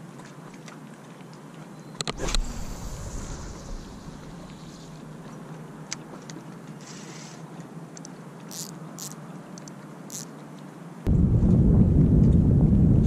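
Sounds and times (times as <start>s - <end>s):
wind hiss: 2.1s - 5.6s.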